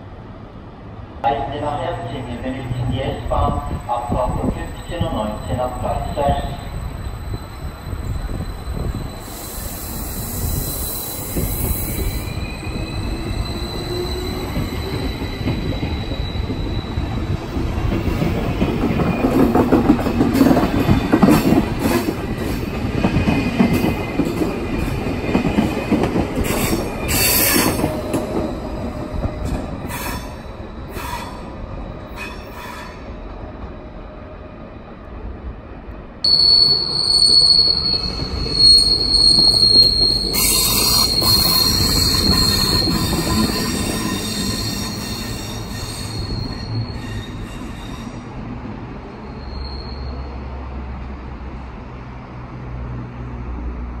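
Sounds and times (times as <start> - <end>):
high-pitched wheel squeal: 4.8 - 17.2, 36.3 - 48.2, 49.2 - 50.5
train wheels clicking over rail joints: 17.5 - 31.1.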